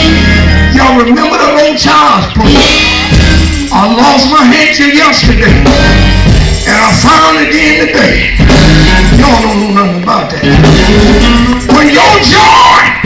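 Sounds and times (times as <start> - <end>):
electric guitar: 0.0 - 0.8, 5.4 - 13.0
live gospel music: 0.0 - 13.0
man singing into a microphone: 6.7 - 13.0.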